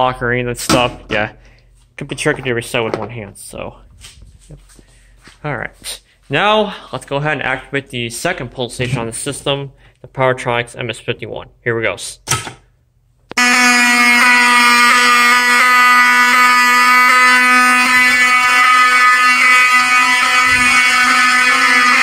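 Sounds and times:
fire alarm horn buzzing: 0:13.3 - 0:22.0.

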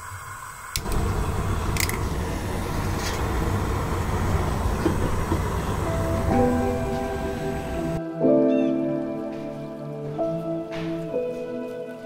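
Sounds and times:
gas flame burning: 0:00.0 - 0:08.0
gas stove igniter clicks: 0:00.7 - 0:05.7.

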